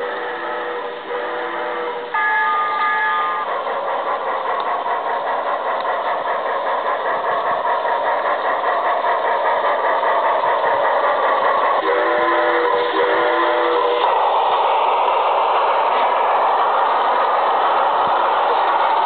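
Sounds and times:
steam whistle chord: 0.0 - 3.4, 11.8 - 14.1
model steam locomotive chuffing: 0.0 - 19.0.

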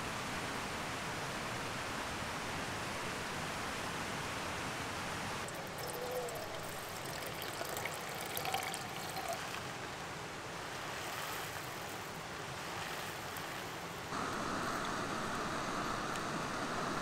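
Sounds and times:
creek water over rocks: 5.0 - 17.0.

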